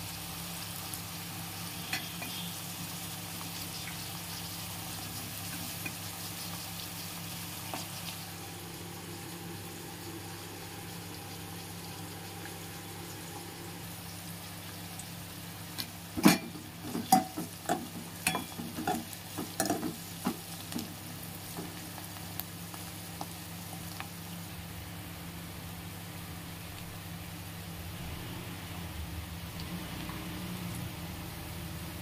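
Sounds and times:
onions sizzling in oil: 0:00.0 - 0:32.0
spoon knocking metal pot: 0:16.2 - 0:20.0.

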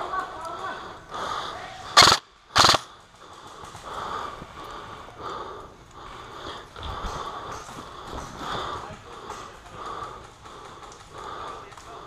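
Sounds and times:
person breathing hard: 0:00.6 - 0:12.0
airsoft rifle full-auto bursts: 0:02.0 - 0:03.0.

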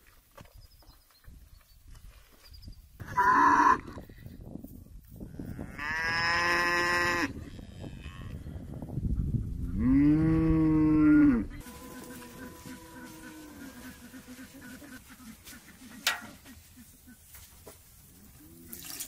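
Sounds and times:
cows mooing: 0:05.4 - 0:08.7, 0:09.8 - 0:15.4.

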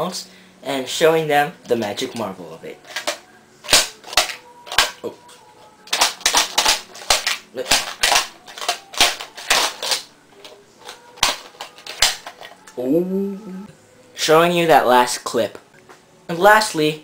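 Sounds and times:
plastic toy case clicking: 0:02.9 - 0:05.0, 0:05.9 - 0:12.8.

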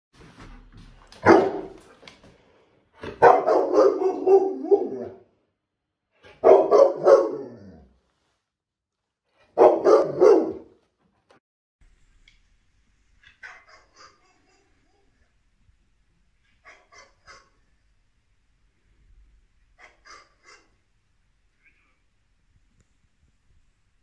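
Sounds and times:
dog barking and grumbling: 0:03.0 - 0:05.3, 0:06.2 - 0:08.0, 0:09.5 - 0:10.8.

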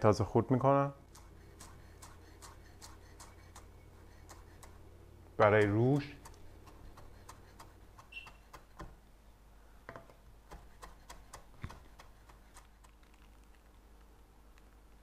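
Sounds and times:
knife chopping on wooden board: 0:01.1 - 0:04.8, 0:05.5 - 0:09.0, 0:09.9 - 0:12.8.

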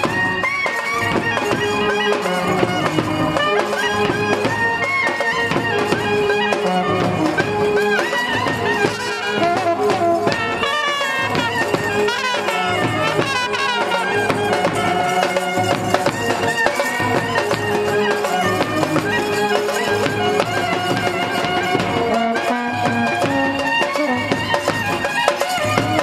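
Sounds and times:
wedding band playing: 0:00.0 - 0:26.0
wind instrument melody: 0:00.0 - 0:26.0.

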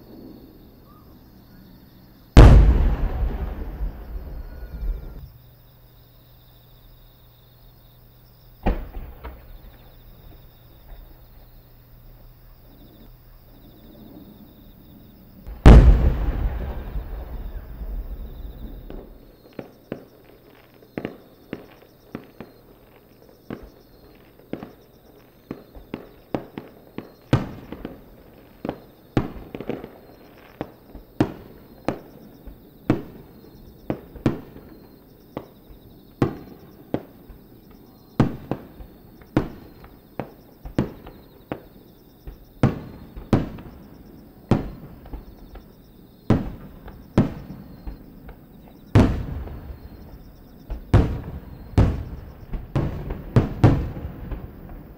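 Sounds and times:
loud firework boom: 0:02.4 - 0:05.3, 0:15.5 - 0:19.2
sharp firework bangs: 0:02.4 - 0:05.3, 0:08.6 - 0:09.8, 0:15.5 - 0:19.2, 0:48.8 - 0:50.1, 0:50.7 - 0:54.9.

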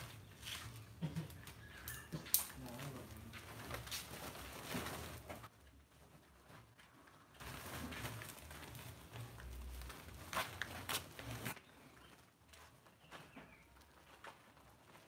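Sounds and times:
plastic sacks rustling and crinkling: 0:00.0 - 0:11.6.

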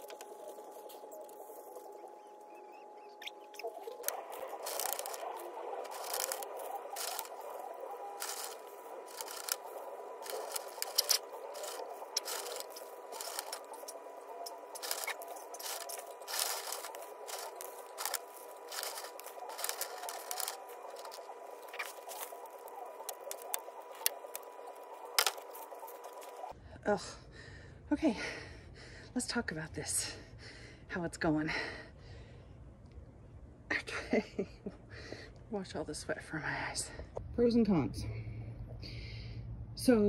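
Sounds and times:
rocks clicking and clattering: 0:03.7 - 0:26.5.

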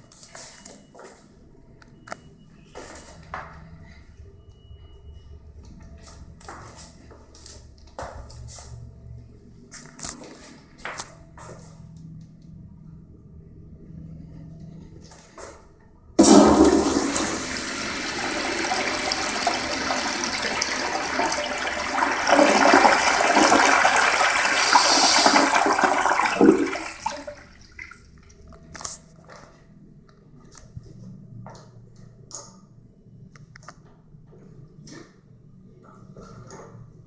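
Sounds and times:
flush valve shutting off: 0:16.2 - 0:27.3
toilet flushing: 0:16.2 - 0:28.2.

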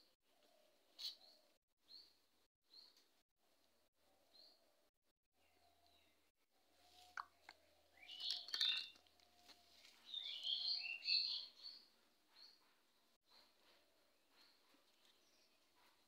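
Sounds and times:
small birds twittering: 0:07.0 - 0:12.6.

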